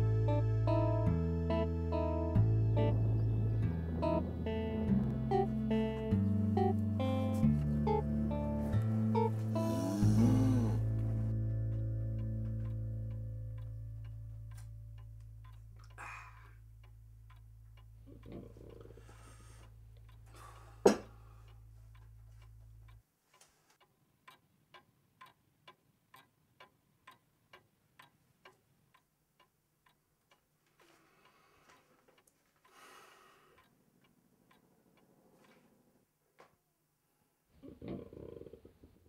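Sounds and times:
low hum: 0.0 - 22.9
faint clock ticking: 0.2 - 37.1.

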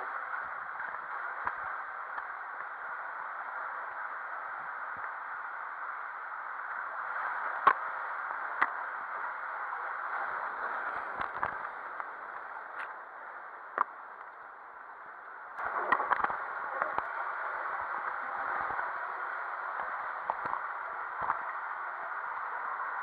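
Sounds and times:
water rushing in slide tube: 15.6 - 23.0.

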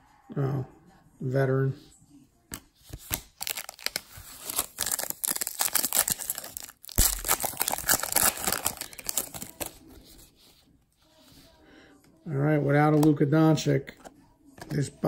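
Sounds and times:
foil pack crinkling and tearing: 3.2 - 9.7.

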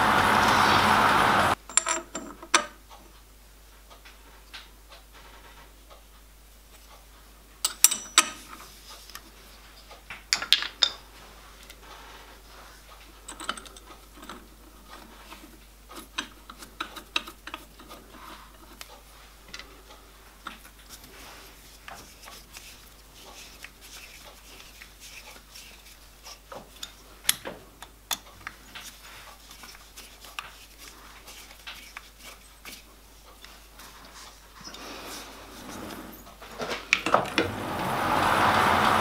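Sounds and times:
metal parts clinking: 1.6 - 2.6, 13.3 - 14.4.

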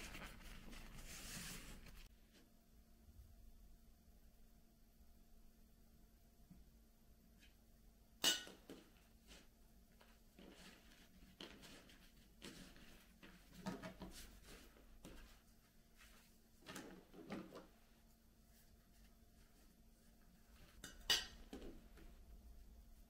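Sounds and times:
dishes and utensils clinking: 8.2 - 8.8, 20.8 - 21.7.

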